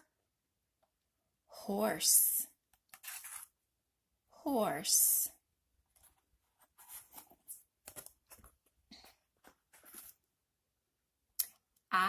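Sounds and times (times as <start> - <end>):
board book pages turning: 2.7 - 3.6, 5.8 - 10.3.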